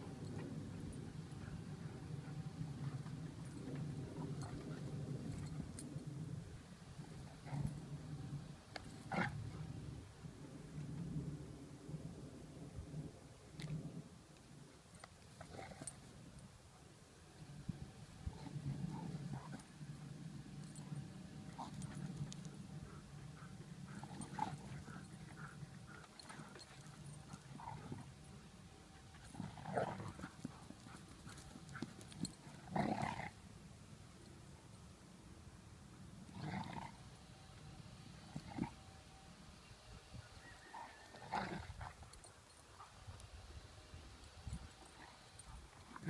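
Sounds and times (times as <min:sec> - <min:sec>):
dogs growling: 0:00.0 - 0:05.8, 0:07.1 - 0:09.8, 0:15.4 - 0:16.1, 0:18.2 - 0:33.4, 0:36.3 - 0:37.1.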